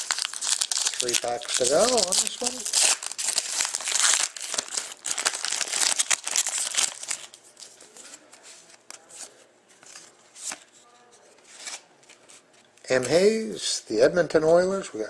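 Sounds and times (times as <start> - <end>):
foil wrapper crinkling and tearing: 0.0 - 7.4.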